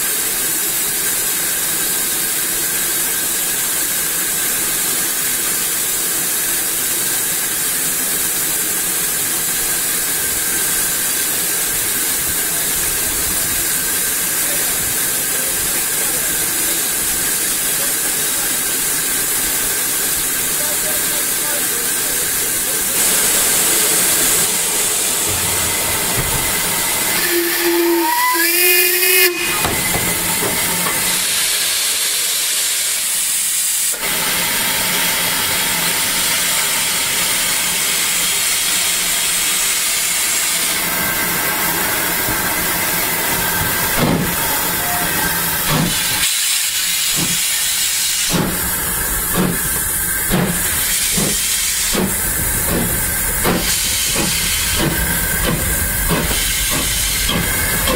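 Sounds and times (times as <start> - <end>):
steam hissing from locomotive: 0.0 - 57.9
steam whistle toot: 27.1 - 29.8.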